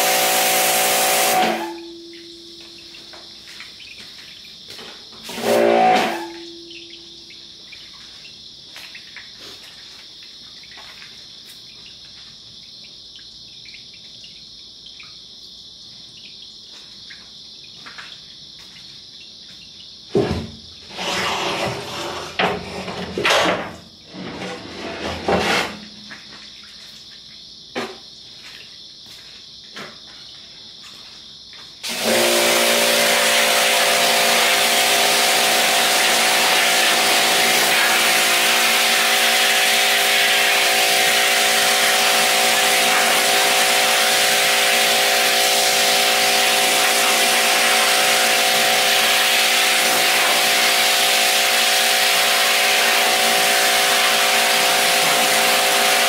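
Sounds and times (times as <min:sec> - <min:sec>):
pressure washer spraying metal: 0:00.0 - 0:01.9, 0:05.2 - 0:06.5, 0:31.8 - 0:56.0.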